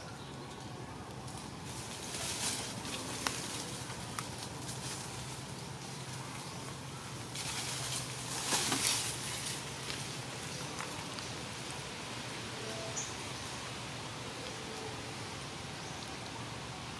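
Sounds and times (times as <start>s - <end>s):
faint rustles and clicks: 0.4s - 12.1s.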